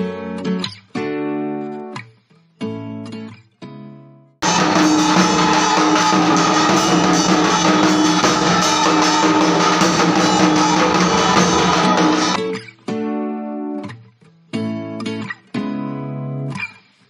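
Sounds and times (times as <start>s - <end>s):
barrel drum beating fast: 4.4s - 12.4s
steady ringing tones: 4.4s - 12.4s.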